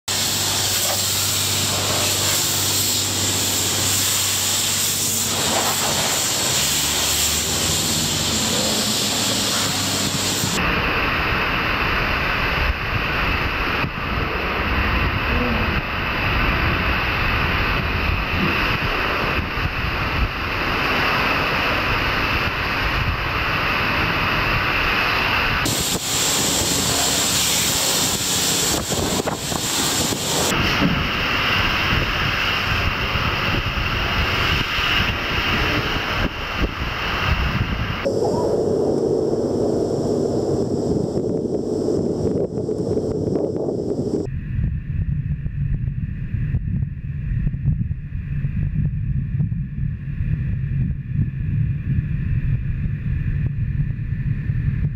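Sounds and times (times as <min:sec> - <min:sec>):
high-pressure spray hissing: 0:00.1 - 0:38.4
low hum: 0:00.1 - 0:54.9.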